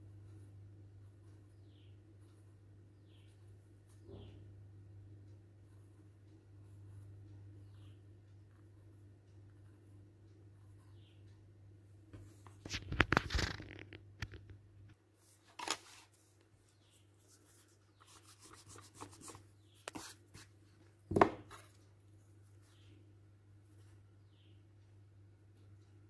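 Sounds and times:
paper rustling and scraping: 12.4s - 13.9s, 15.3s - 16.3s.

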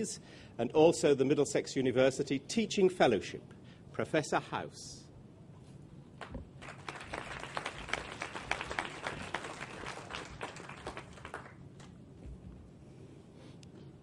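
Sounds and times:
audience applause: 6.6s - 11.9s.

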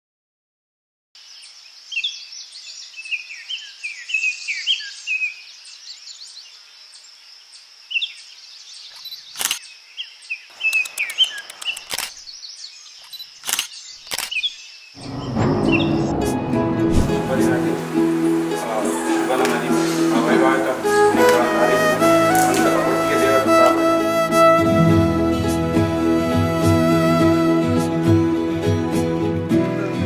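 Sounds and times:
birds chirping: 7.5s - 16.6s
sharp clicks: 8.9s - 9.6s, 10.6s - 12.3s, 13.0s - 14.4s
music: 15.0s - 30.0s
steady high hiss: 17.0s - 24.4s.

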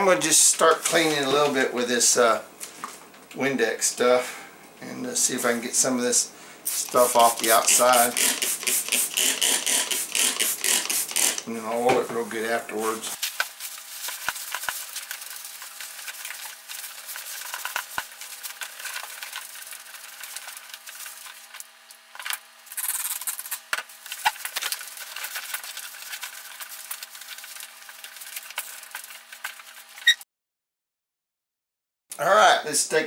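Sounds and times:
rag wiping wood and metal: 6.7s - 11.4s.

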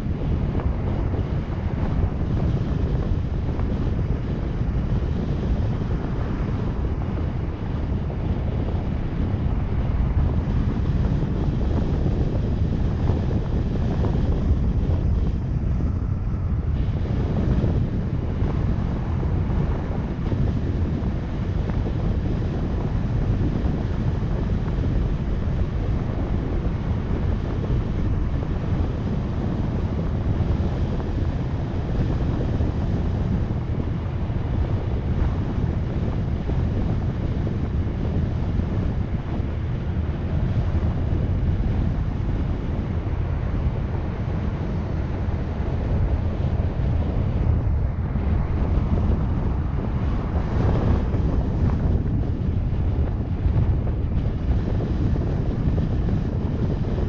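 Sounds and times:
road noise: 0.0s - 57.0s
wind noise on microphone: 0.0s - 57.0s.

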